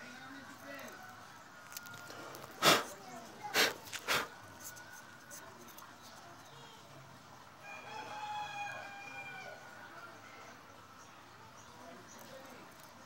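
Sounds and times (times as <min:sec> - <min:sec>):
rooster crowing: 0:07.6 - 0:09.7.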